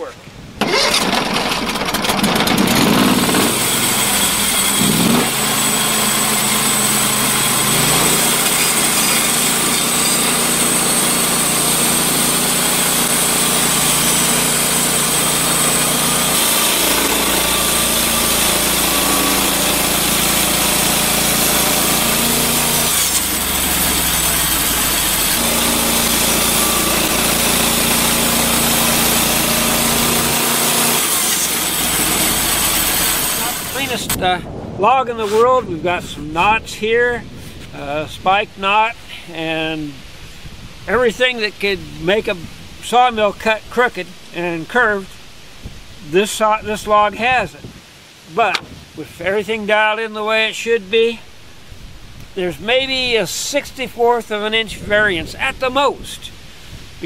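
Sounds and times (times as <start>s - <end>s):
band blade sawing wood: 0.6s - 34.2s
sawmill engine running: 0.6s - 34.3s.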